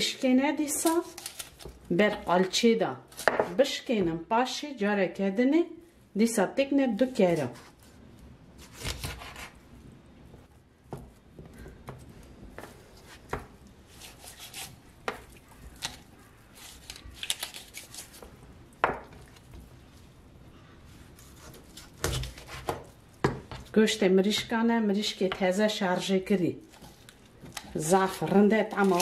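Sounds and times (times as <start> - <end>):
knife slicing and scraping: 8.6 - 9.6, 13.0 - 14.8, 21.1 - 22.9.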